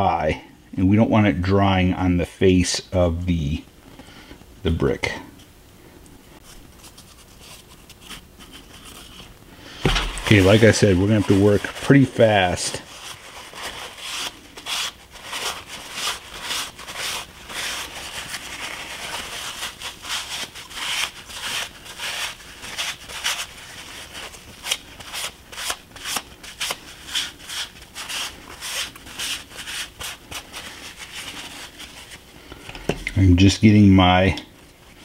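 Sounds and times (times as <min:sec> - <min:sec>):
paper towel scuffing on bricks: 0:09.8 - 0:32.3.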